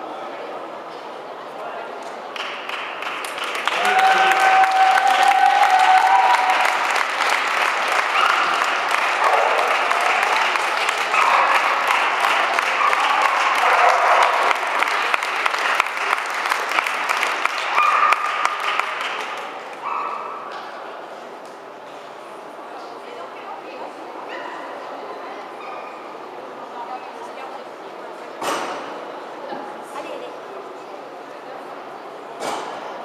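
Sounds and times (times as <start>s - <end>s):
audience clapping: 2.3s - 19.9s.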